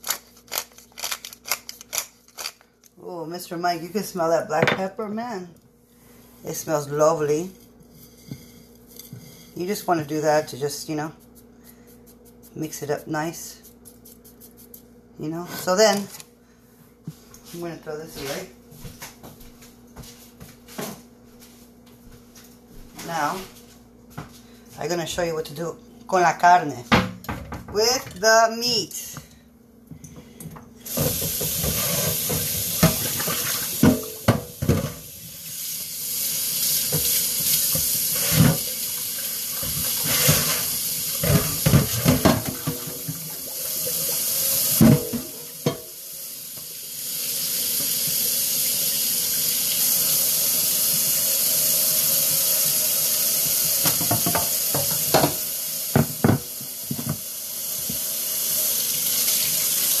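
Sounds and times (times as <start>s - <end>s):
tap running into sink: 53.4s - 58.1s.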